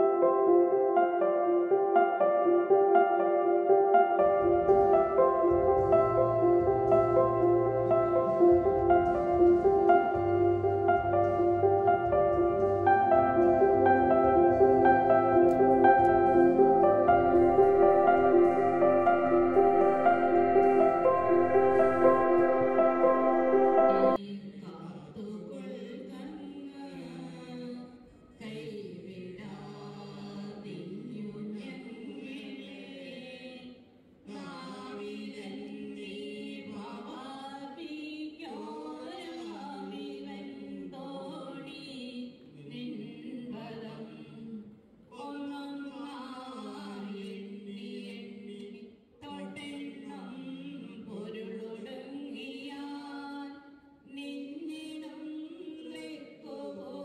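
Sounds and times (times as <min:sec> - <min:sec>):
voices singing a slow song: 0:05.9 - 0:24.2.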